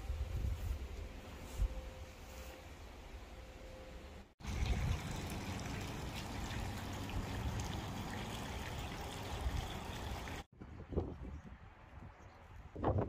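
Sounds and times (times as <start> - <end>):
water trickling: 4.4 - 10.5.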